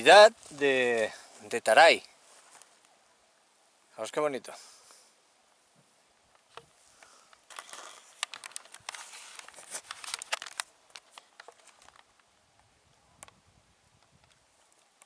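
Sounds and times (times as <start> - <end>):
dry brush rustling and snapping: 0.0 - 3.0, 6.3 - 13.4.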